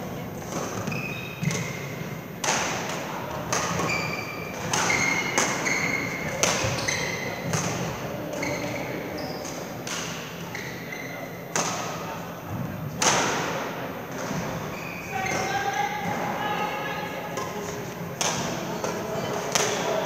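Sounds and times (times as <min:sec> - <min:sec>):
racket hitting shuttlecock: 0:00.4 - 0:08.0, 0:09.5 - 0:10.4, 0:11.5 - 0:12.0, 0:13.0 - 0:14.5, 0:17.3 - 0:20.0
shoes squeaking on floor: 0:00.7 - 0:02.1, 0:03.6 - 0:09.8, 0:10.4 - 0:11.4, 0:14.4 - 0:17.0.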